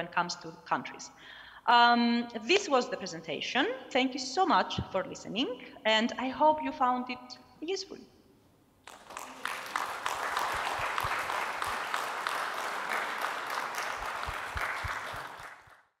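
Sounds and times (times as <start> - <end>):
audience applauding: 8.8 - 15.9.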